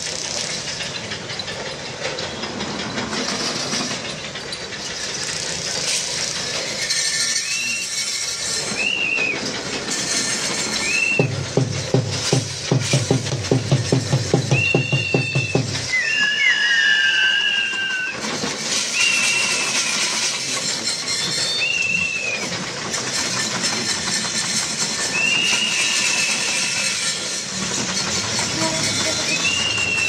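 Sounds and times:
sharp high whistles: 6.8s - 9.5s, 10.2s - 11.4s, 14.5s - 22.6s, 24.9s - 27.3s, 28.6s - 30.0s.

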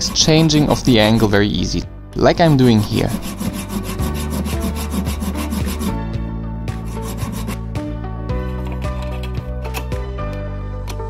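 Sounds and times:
file scraping metal: 0.0s - 1.5s, 2.3s - 6.0s, 6.7s - 7.7s, 8.4s - 9.5s
background music: 0.0s - 11.0s.

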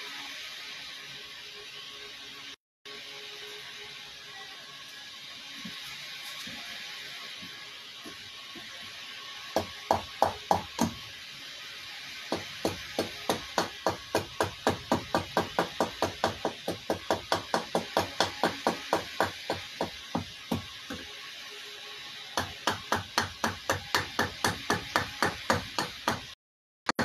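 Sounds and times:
hatchet chopping wood: 9.6s - 11.0s, 12.3s - 21.0s, 22.4s - 26.3s.

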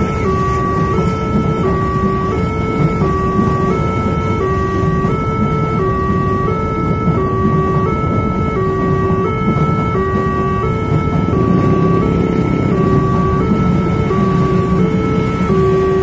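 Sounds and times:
passenger train passing: 0.0s - 16.0s
two-tone level crossing alarm: 0.0s - 16.0s.

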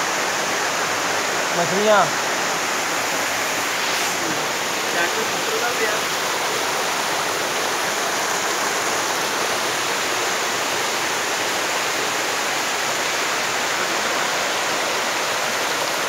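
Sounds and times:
stream rushing over rocks: 0.0s - 16.0s.

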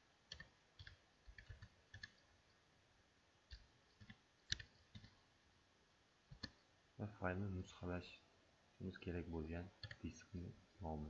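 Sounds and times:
keystrokes on computer keyboard: 0.3s - 2.6s, 3.5s - 5.2s, 6.3s - 6.6s, 9.8s - 10.1s.

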